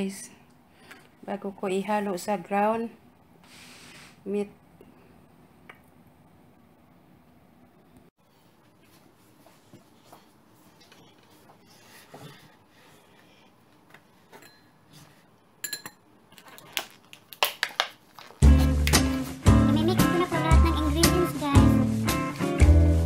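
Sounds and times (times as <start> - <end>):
kitchenware handled on a table: 14.2 - 16.0.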